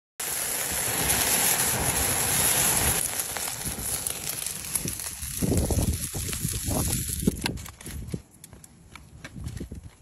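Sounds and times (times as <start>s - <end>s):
meat sizzling on a charcoal grill: 0.2s - 7.4s.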